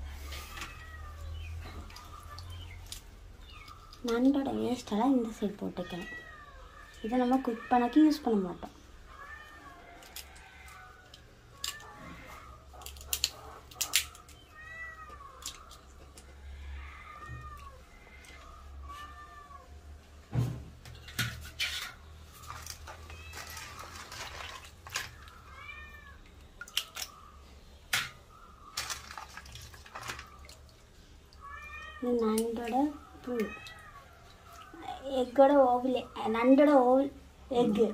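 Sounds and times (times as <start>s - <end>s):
cat meowing: 0.4s - 1.6s, 14.5s - 15.7s, 16.3s - 19.8s, 24.9s - 26.2s, 31.4s - 34.8s
crab shells cracking: 9.8s - 16.4s, 22.4s - 25.5s, 26.4s - 30.8s.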